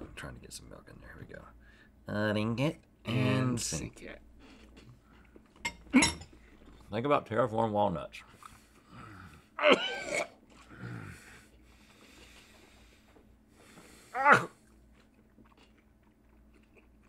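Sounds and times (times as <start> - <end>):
man groaning in disgust: 14.1 - 14.6.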